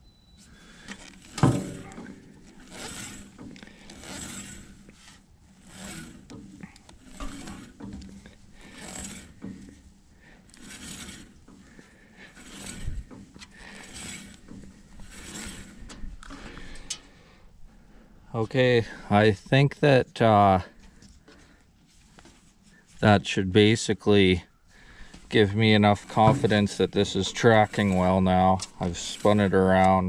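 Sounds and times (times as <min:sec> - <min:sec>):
bandsaw blade swishing over wheels: 0:00.4 - 0:17.0, 0:25.3 - 0:30.0.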